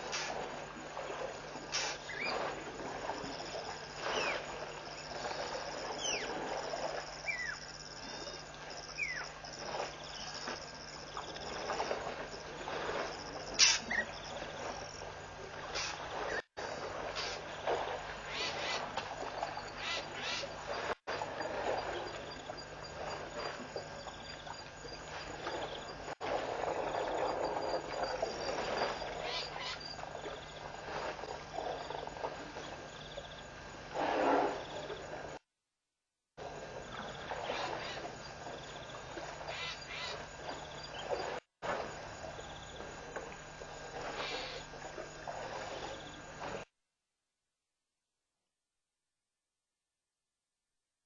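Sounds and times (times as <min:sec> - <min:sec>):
high insect trill: 0:00.1 - 0:33.9, 0:36.5 - 0:46.4
water stirring and splashing: 0:40.2 - 0:46.6.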